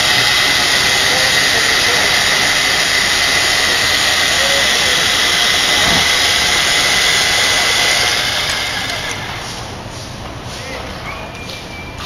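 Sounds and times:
construction machinery running: 0:00.0 - 0:10.6.

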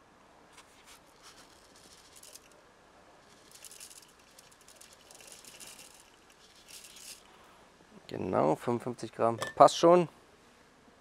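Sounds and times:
dry rice pattering into bowl: 0:00.6 - 0:02.6, 0:03.2 - 0:07.3.

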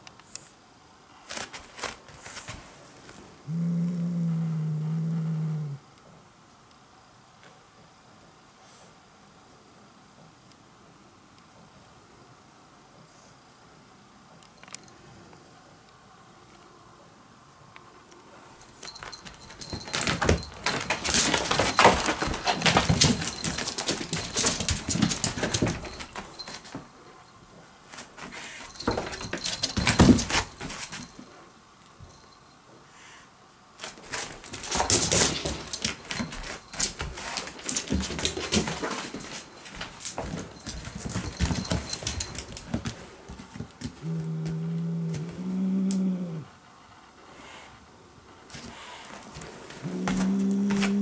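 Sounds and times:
paws scrabbling on floor: 0:18.7 - 0:27.0, 0:27.9 - 0:31.3, 0:33.8 - 0:45.4, 0:48.5 - 0:51.0.

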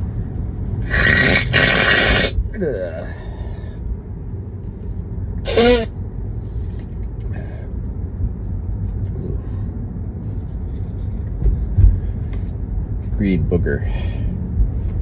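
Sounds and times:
low rumble inside a car: 0:00.0 - 0:15.0
short vocal burst: 0:05.4 - 0:06.0.

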